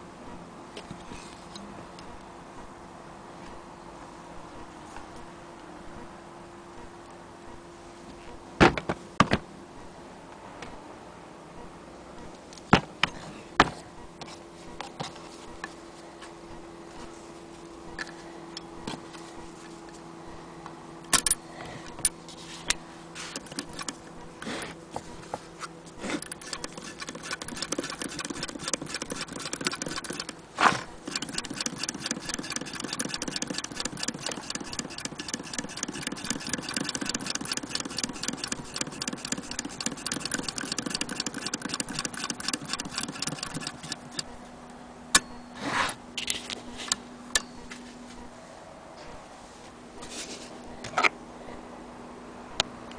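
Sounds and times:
sewing machine clicks: 0:23.3 - 0:24.0, 0:26.2 - 0:30.4, 0:31.0 - 0:44.3
sewing machine needle clatter: 0:23.3 - 0:24.0, 0:26.2 - 0:30.4, 0:31.0 - 0:44.3.

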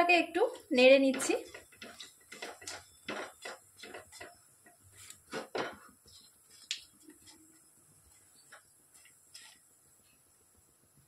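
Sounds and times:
spatula scraping a wok: 0:00.6 - 0:05.9.

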